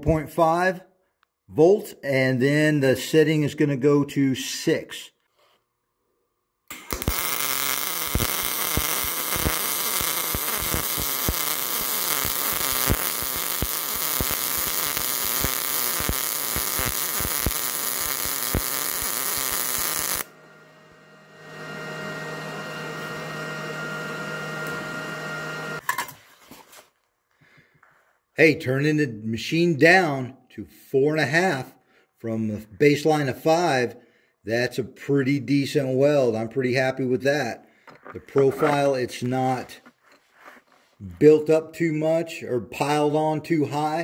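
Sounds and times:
welder arc buzzing and crackling: 6.7 - 25.8
machine hum with fixed tones: 20.2 - 25.8.

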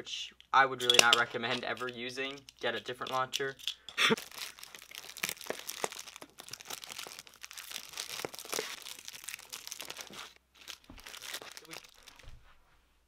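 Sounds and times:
plastic bags crinkling: 4.2 - 12.4.

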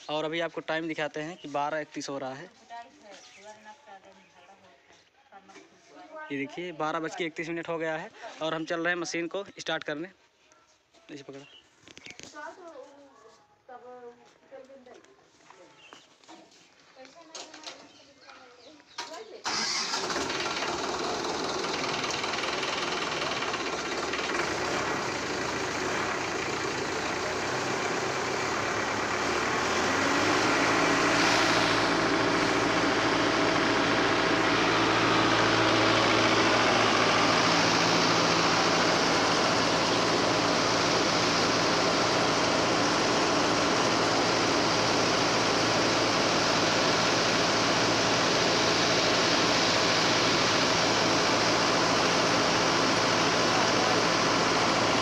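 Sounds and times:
tractor diesel engine running: 19.4 - 55.0
rice mill running: 19.6 - 55.0.

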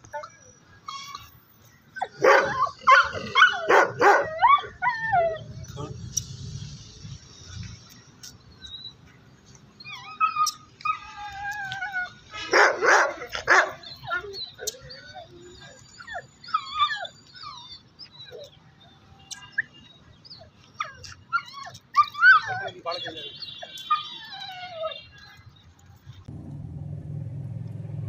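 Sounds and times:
dogs whining and yelping: 0.0 - 6.0, 8.2 - 25.7
dog barking loudly: 2.1 - 4.4, 12.4 - 13.8.

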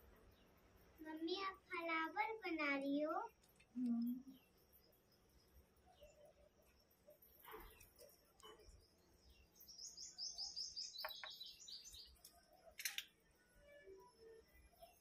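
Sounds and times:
bird chirping: 3.4 - 15.0.

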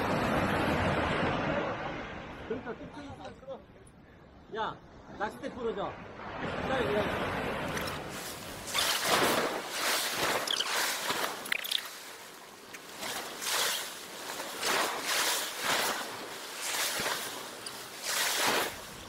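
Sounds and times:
surf washing against rocks: 6.2 - 19.0.

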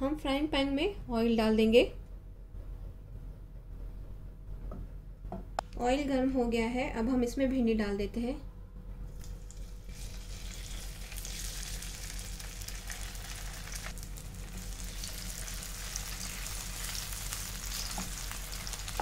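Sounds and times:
okra sizzling in hot oil: 9.2 - 19.0.

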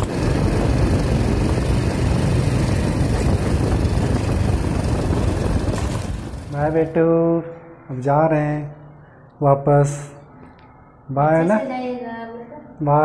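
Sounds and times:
motorcycle engine running: 0.0 - 7.0
wind noise: 0.0 - 7.0.

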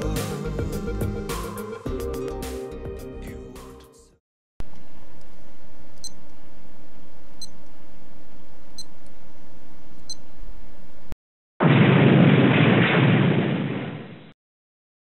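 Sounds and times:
loud rushing explosion blast: 11.6 - 14.4.

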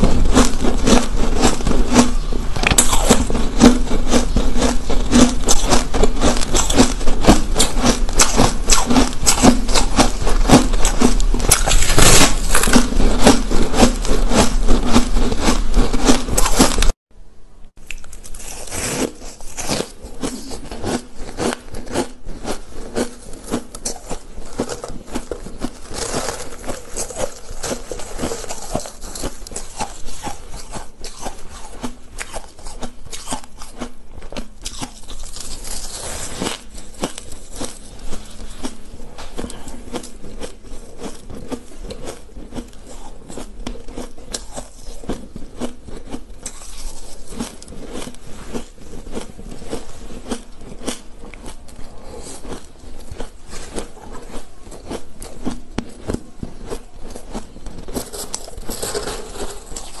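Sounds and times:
person crunching ice: 0.0 - 17.0, 17.9 - 60.0.

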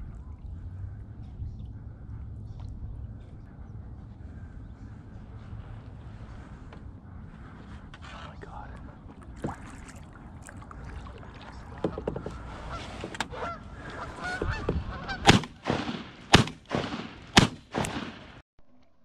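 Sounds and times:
geese honking: 10.9 - 15.7
shotgun shots: 15.2 - 18.4.

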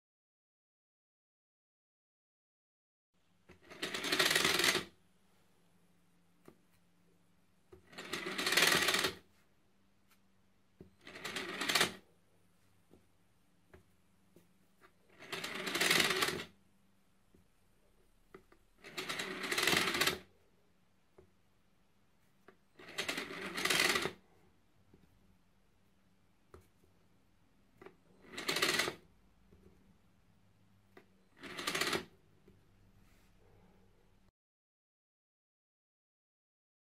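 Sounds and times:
small motor driving plastic gears: 3.5 - 4.9, 7.9 - 9.2, 11.0 - 12.0, 15.1 - 16.5, 18.8 - 20.3, 22.8 - 24.2, 28.2 - 29.0, 31.4 - 32.1.

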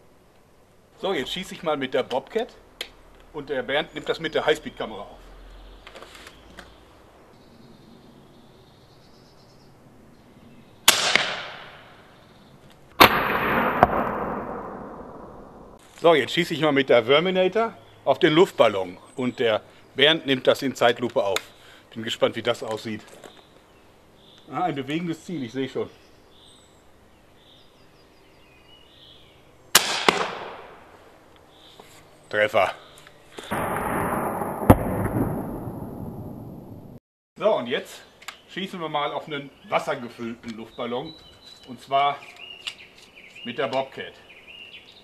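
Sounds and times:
air rifle firing: 10.9 - 12.0, 13.0 - 15.8, 29.8 - 30.8, 33.4 - 36.7
balloon bursting: 13.0 - 15.8, 33.5 - 37.0.

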